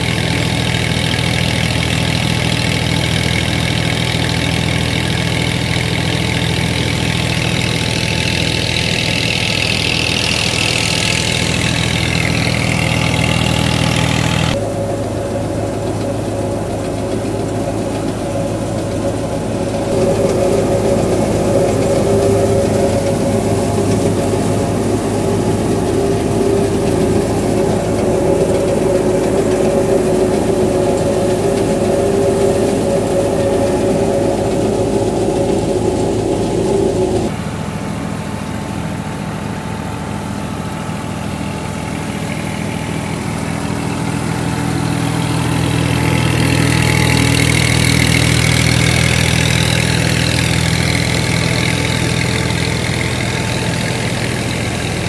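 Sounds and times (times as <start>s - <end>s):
deep steady drone: 0.0s - 55.0s
threshing machine running: 0.0s - 55.0s
tractor engine under load: 0.0s - 55.0s.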